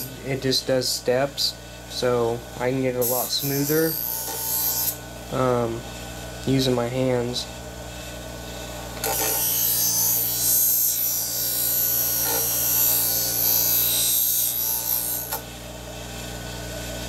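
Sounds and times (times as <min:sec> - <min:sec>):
blade grinding on sharpening wheel: 0:00.0 - 0:00.3, 0:02.9 - 0:05.0, 0:08.5 - 0:15.5
motor hum: 0:00.0 - 0:17.0.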